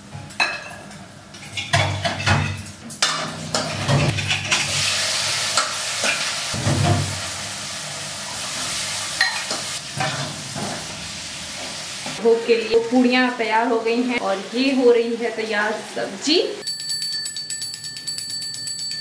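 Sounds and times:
oil sizzling: 0:03.4 - 0:16.6.

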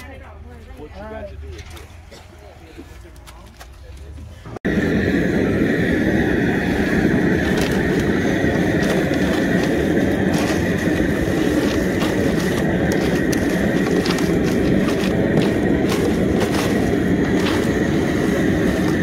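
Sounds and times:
steady rushing roar: 0:04.4 - 0:19.0
plastic scoops scraping crawfish: 0:07.5 - 0:19.0.

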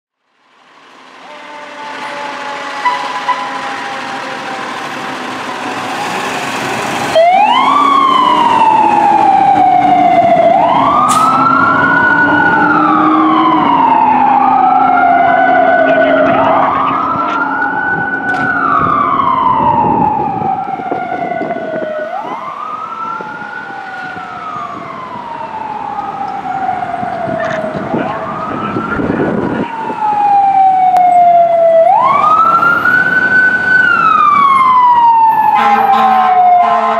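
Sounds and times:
diesel engine: 0:00.2 - 0:36.9
siren wailing: 0:01.2 - 0:36.9.

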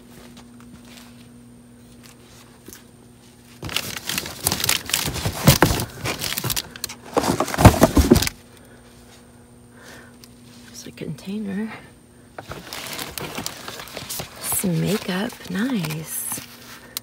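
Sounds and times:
plastic crinkling: 0:03.4 - 0:08.3, 0:12.4 - 0:17.0
cardboard scraping: 0:03.6 - 0:08.4, 0:12.4 - 0:16.5.

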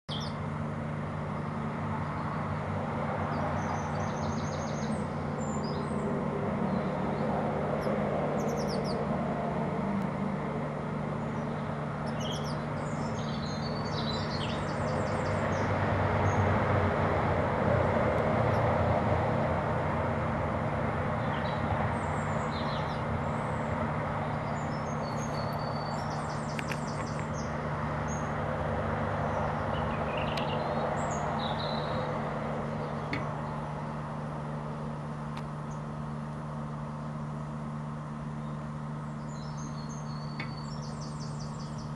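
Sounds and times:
low mechanical hum: 0:00.1 - 0:41.9
blue tits chirping: 0:06.7 - 0:09.1, 0:11.2 - 0:16.4, 0:21.2 - 0:28.3, 0:29.3 - 0:33.7, 0:38.4 - 0:41.9.

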